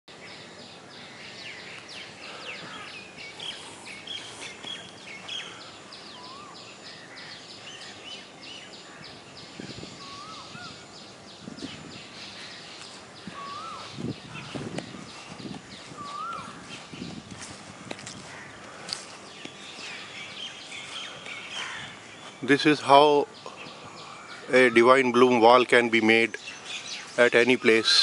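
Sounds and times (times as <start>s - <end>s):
wild birds chirping: 0.1s - 28.0s.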